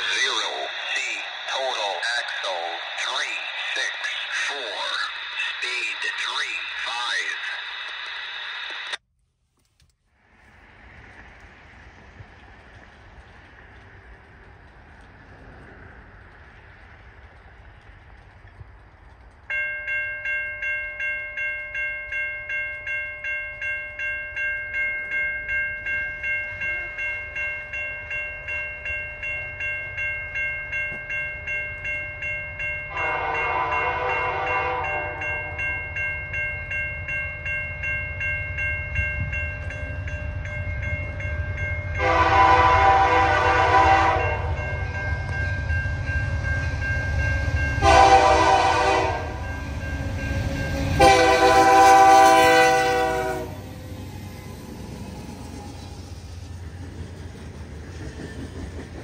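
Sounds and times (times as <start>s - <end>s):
crossing bell ringing: 0.0s - 7.7s, 19.4s - 59.0s
freight train rumble: 0.0s - 9.0s, 10.0s - 59.0s
train air horn blowing: 32.9s - 35.5s, 42.0s - 44.5s, 47.8s - 49.4s, 51.0s - 53.6s.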